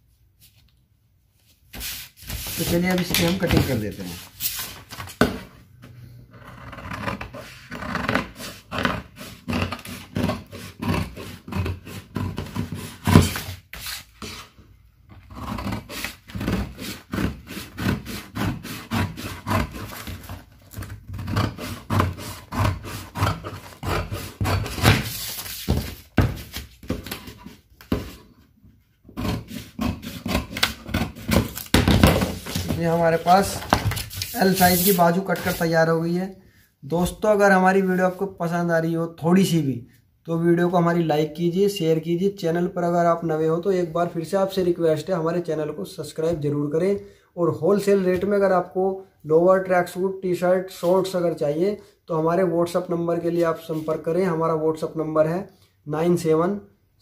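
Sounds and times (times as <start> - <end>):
paper rustling: 1.7 - 5.2, 31.3 - 35.7.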